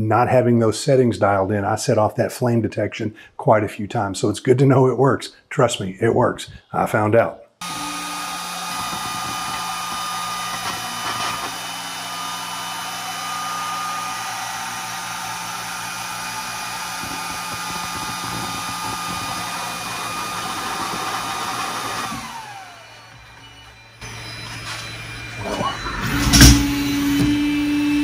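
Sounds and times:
laser engraver fans whirring: 7.7 - 25.7
high whine: 13.7 - 28.0.

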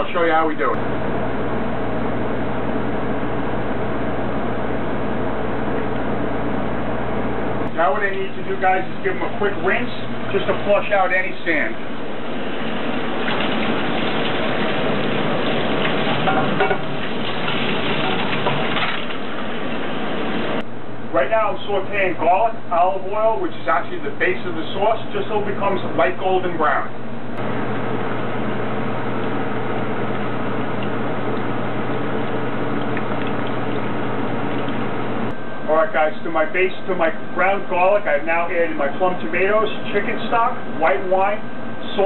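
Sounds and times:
steady low hum: 0.0 - 42.0
tap water running: 11.8 - 20.6.

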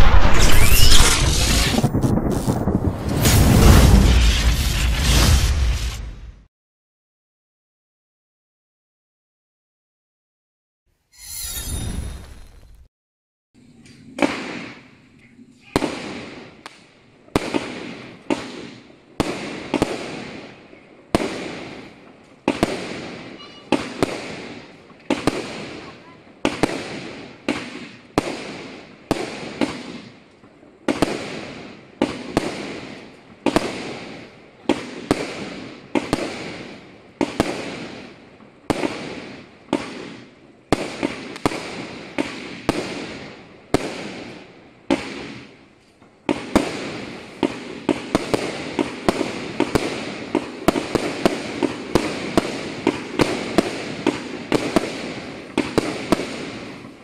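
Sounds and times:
crackling firework stars: 0.0 - 6.5, 13.7 - 57.0
firework shots: 0.0 - 6.5, 30.9 - 45.6, 46.2 - 57.0.

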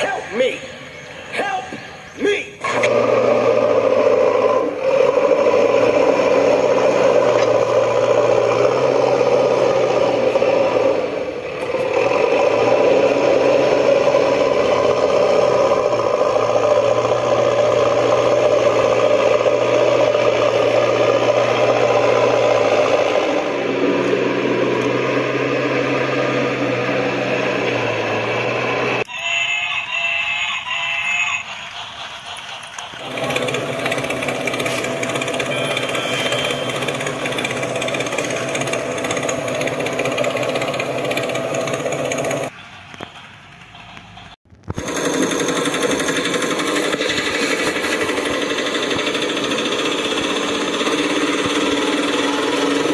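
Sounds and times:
warbling electronic tones: 35.1 - 38.4.

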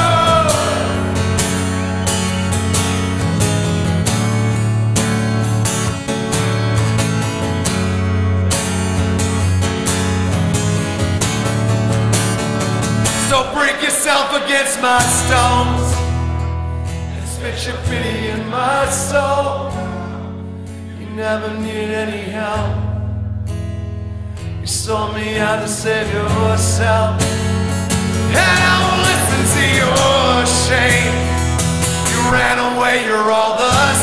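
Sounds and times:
man singing: 0.0 - 1.7, 13.2 - 16.2, 17.1 - 22.9, 24.6 - 27.4, 28.2 - 34.0
strummed acoustic guitar: 0.0 - 34.0.

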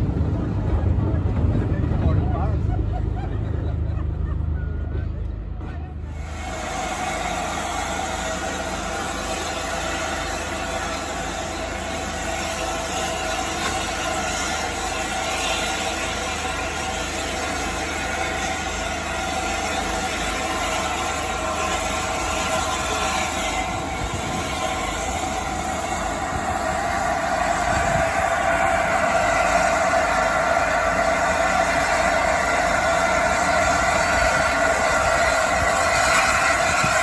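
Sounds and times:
steam hissing: 6.1 - 37.0.

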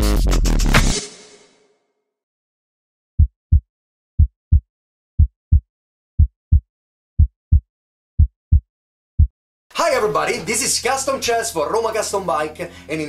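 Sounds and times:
heartbeat thumps: 3.2 - 9.3.

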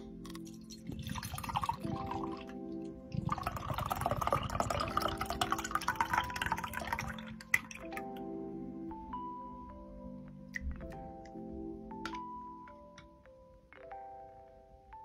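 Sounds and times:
liquid pouring into glass mug: 0.3 - 8.0.

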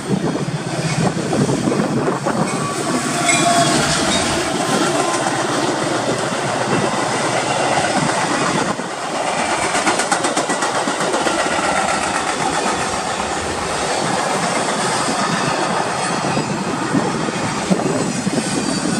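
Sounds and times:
train wheels rumbling: 0.0 - 18.9
wheels clacking over rail joints: 0.6 - 18.9.

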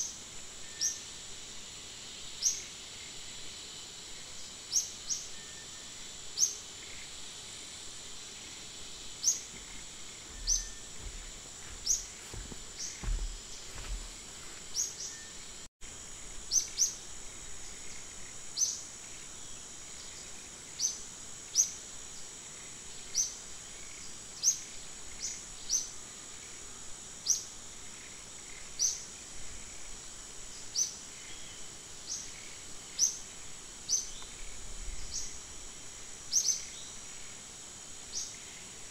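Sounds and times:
high insect drone: 0.0 - 38.9
bird chirping: 9.2 - 14.0.

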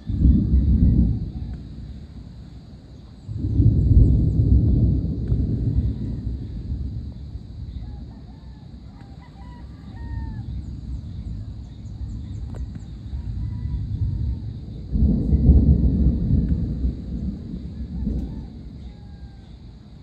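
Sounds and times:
rooster crowing: 0.0 - 2.0, 7.7 - 10.8, 12.7 - 20.0
thunder rumbling: 0.0 - 20.0.

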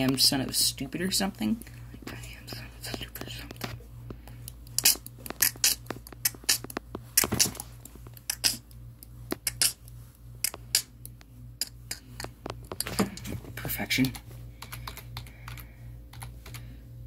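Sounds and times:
low steady hum: 0.0 - 17.0
sharp clicks and taps: 2.9 - 13.3.

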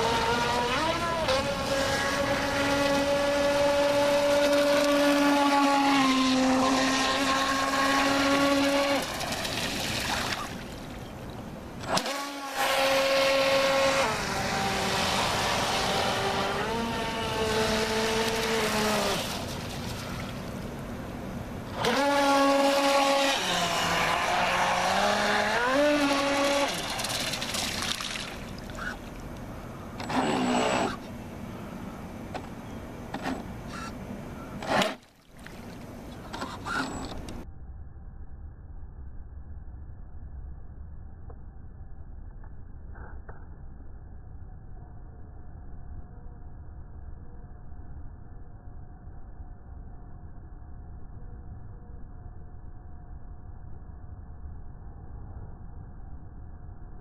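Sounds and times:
electric motor whining: 0.0 - 9.4, 11.8 - 19.5, 21.7 - 27.6, 30.0 - 31.1.

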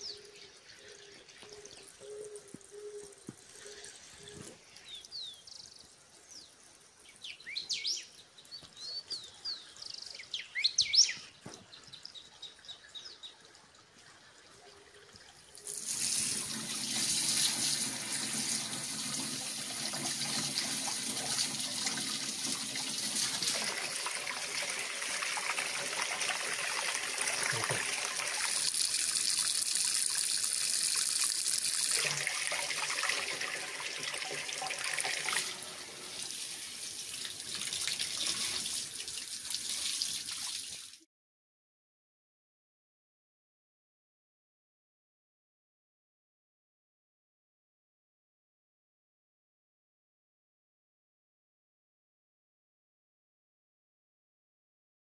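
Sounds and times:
small birds chirping: 0.0 - 13.4
tap water running into basin: 15.0 - 41.0.

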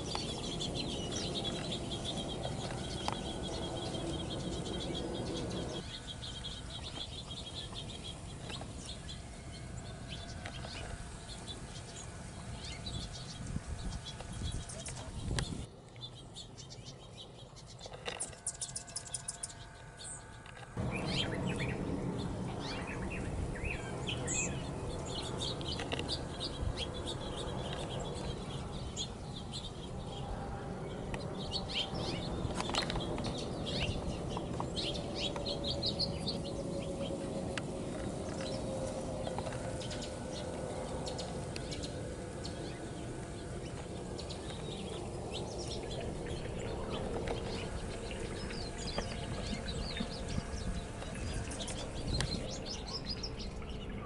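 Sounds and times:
small birds chirping: 0.0 - 54.0
low rumble: 18.8 - 54.0.

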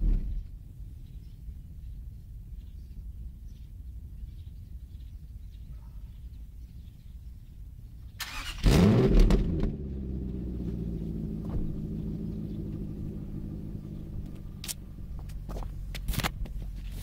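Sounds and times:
car engine starting and idling: 8.1 - 17.0.

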